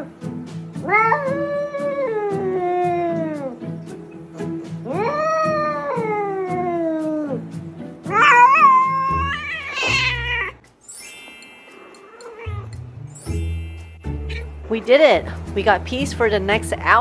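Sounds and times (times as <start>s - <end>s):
cat yowling: 0.8s - 3.5s, 4.9s - 7.4s, 8.1s - 10.6s.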